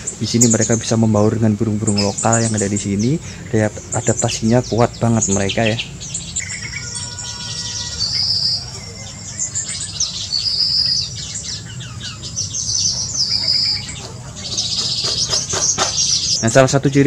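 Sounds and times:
birds chirping: 0.0s - 17.0s
high warbling bird phrase: 0.0s - 17.0s.

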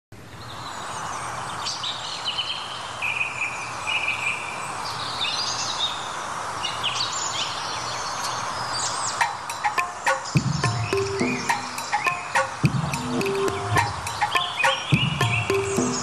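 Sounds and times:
steady background noise: 0.1s - 16.0s
high bird chirps and whistles: 8.2s - 16.0s.

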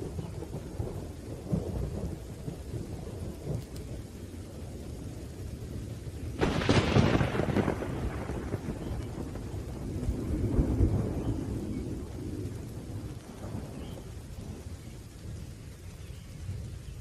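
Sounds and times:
low rumbling thunder: 0.0s - 17.0s
rain falling: 0.0s - 17.0s
loud thunder crack: 6.4s - 14.0s.

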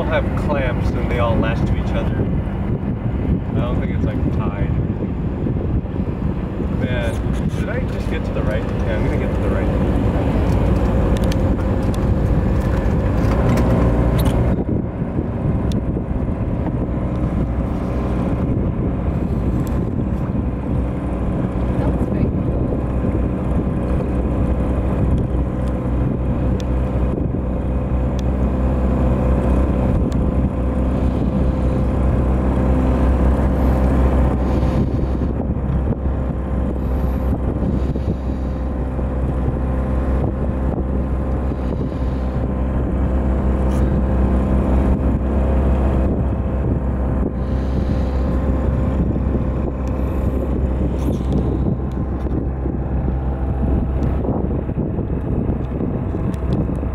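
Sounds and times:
boat motor running: 0.0s - 56.9s
wind buffeting microphone: 0.0s - 56.9s.

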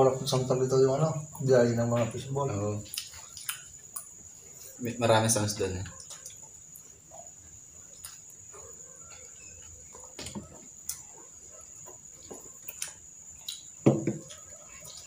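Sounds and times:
chewing: 2.8s - 4.8s, 5.9s - 15.0s.

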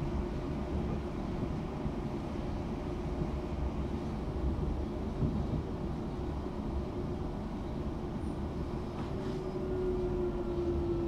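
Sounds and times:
train wheels rumbling on track: 0.0s - 11.0s.

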